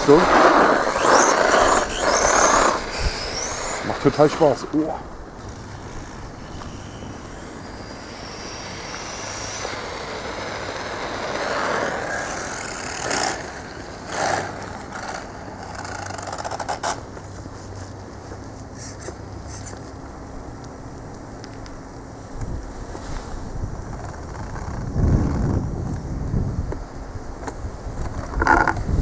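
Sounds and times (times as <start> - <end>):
electric motor whining: 0.0 - 17.1
tyres rushing on asphalt: 0.0 - 17.1.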